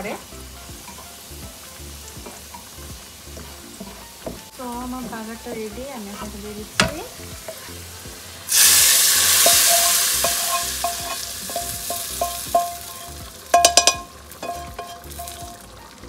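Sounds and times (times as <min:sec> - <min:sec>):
hot oil sizzling: 0:00.0 - 0:16.0
pans and utensils knocking: 0:06.8 - 0:07.6, 0:09.3 - 0:15.6.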